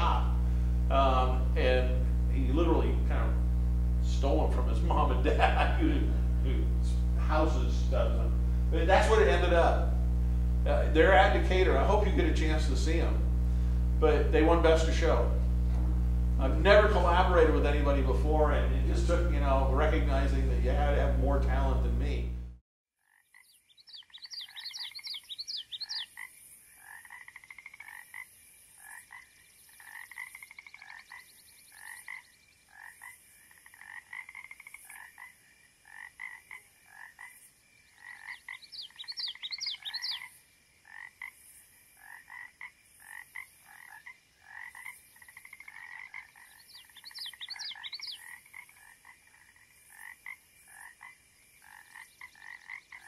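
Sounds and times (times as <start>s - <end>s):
frogs calling in chorus: 23.0s - 53.0s.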